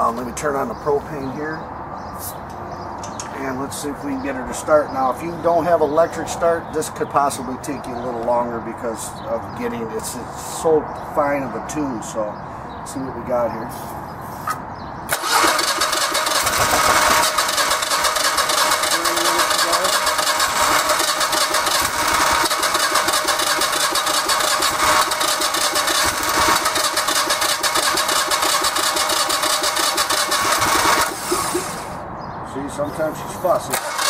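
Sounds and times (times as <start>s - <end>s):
electric starter cranking engine: 15.1s - 32.0s, 33.7s - 34.0s.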